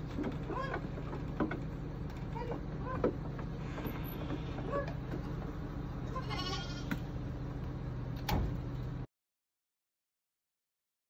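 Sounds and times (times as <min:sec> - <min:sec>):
steady low hum: 0:00.0 - 0:09.1
lamb bleating: 0:06.1 - 0:07.0.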